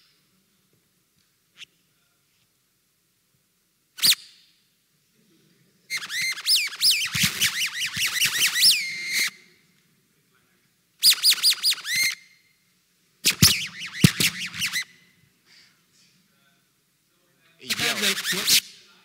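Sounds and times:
microphone feedback chirps: 5.9 - 9.6, 11.0 - 12.6, 13.2 - 15.2.

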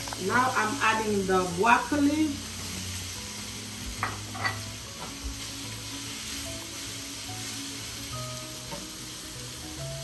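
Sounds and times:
food sizzling in a wok: 0.0 - 10.0
soft background music: 0.0 - 10.0.

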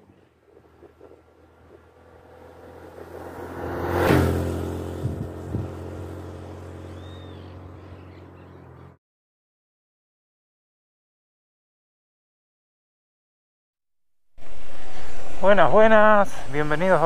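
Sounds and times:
motorcycle passing by: 0.4 - 9.0, 14.4 - 17.0.

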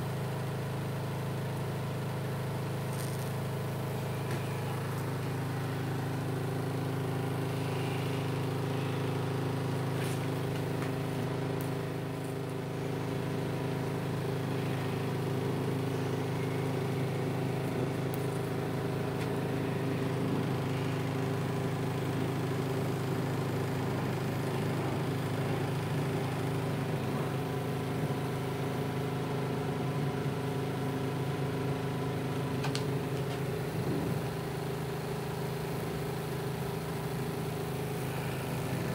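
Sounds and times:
arc crackling on wood: 2.8 - 3.6, 7.3 - 29.3, 32.4 - 37.4
transformer humming: 2.9 - 36.1.

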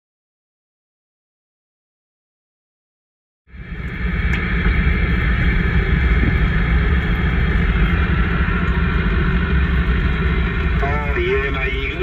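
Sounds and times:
car interior low rumble: 3.5 - 12.0.

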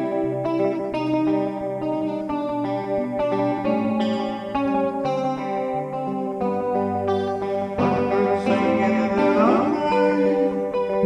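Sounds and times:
electric guitar playing: 0.0 - 11.0.

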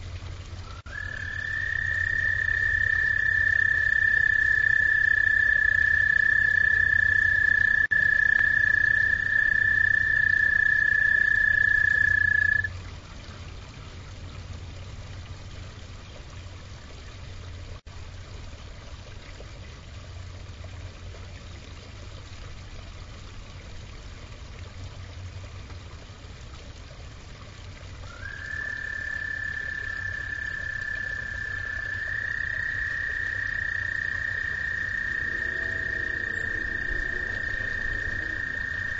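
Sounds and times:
low steady hum: 0.0 - 38.9
frog trilling: 0.8 - 12.7, 28.1 - 38.9.

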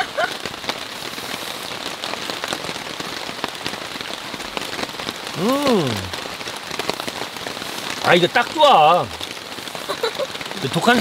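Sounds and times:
heavy rain on a tarp: 0.0 - 11.0
person making short voiced sound: 5.4 - 6.2.

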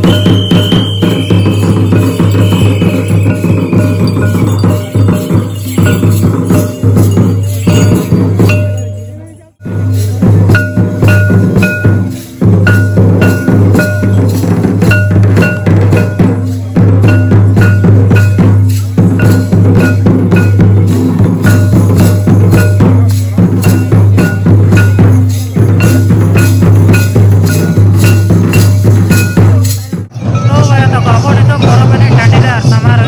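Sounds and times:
high ringing pings: 0.0 - 9.2
barrel drums beating: 0.0 - 30.7.

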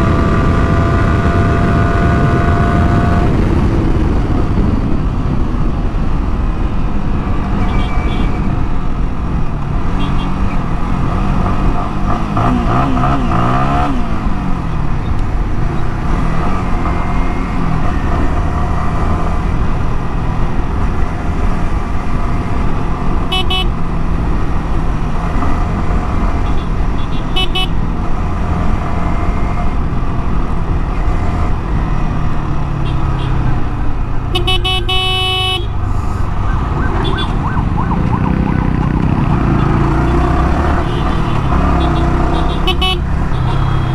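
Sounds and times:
wind noise: 0.0 - 16.7
vehicle horns honking: 7.6 - 8.4, 23.3 - 23.8, 26.4 - 27.8, 34.3 - 35.8, 37.0 - 37.4, 39.6 - 43.9.

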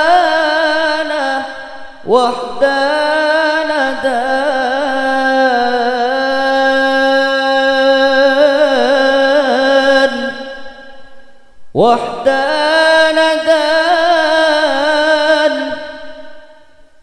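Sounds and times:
man singing devotional song: 0.0 - 16.8.

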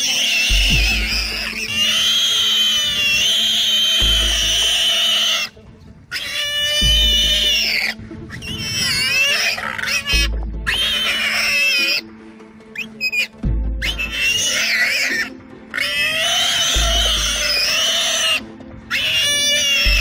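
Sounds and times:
warthog squealing: 0.0 - 12.1, 12.7 - 20.0.

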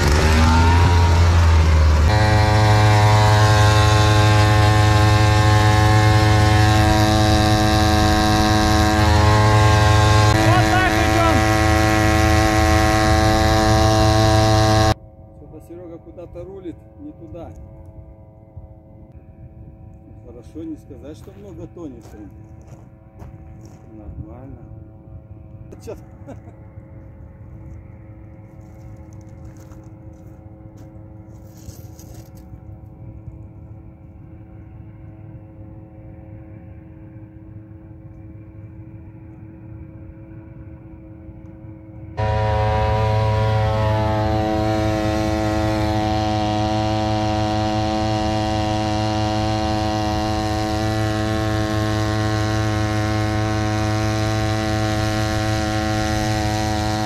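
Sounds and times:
outboard motor running: 0.0 - 15.0, 42.2 - 57.0.

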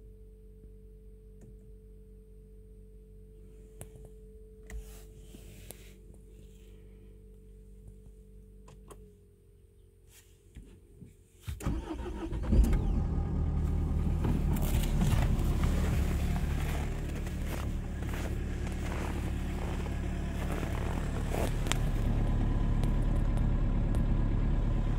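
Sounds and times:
diesel engine starting and idling: 11.5 - 24.9.

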